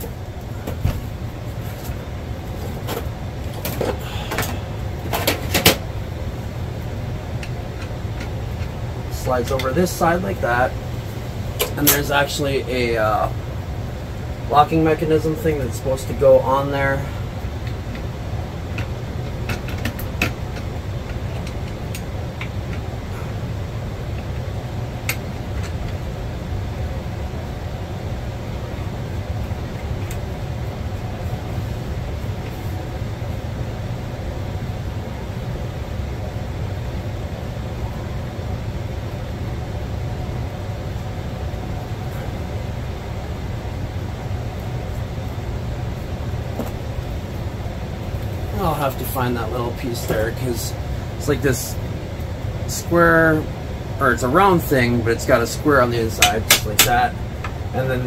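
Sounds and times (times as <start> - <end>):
steady low hum: 0.0 - 58.0.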